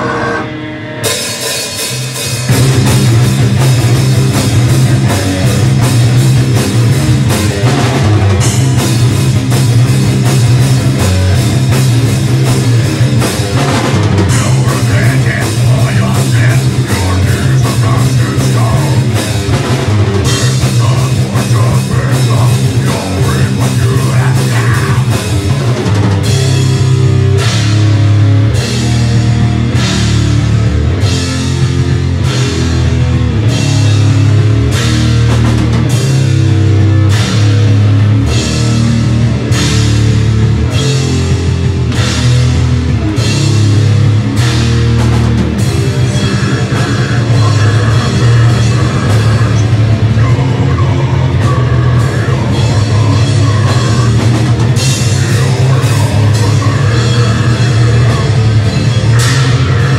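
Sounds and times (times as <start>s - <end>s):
metal band playing live: 0.0s - 59.9s
fast drumming: 1.1s - 59.9s.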